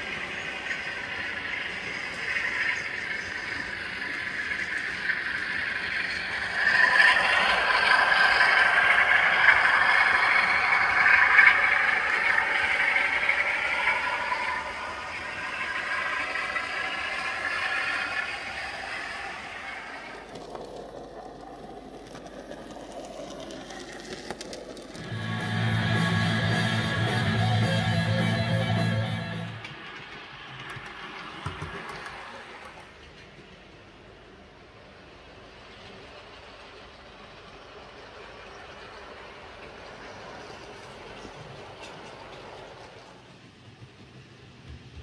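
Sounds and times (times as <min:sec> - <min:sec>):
model locomotive motor whine: 0:00.0 - 0:32.9
wheels rattling on track: 0:00.0 - 0:45.0.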